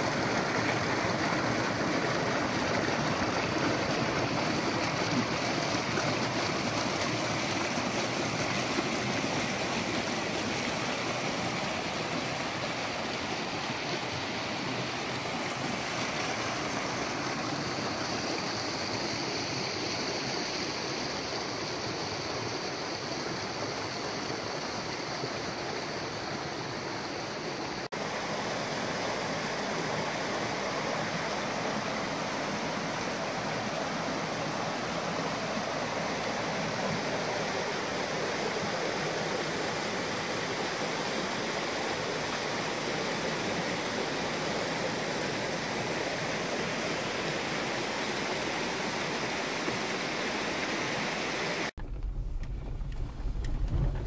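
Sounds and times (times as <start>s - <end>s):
stream rushing over waterfall: 0.0s - 51.8s.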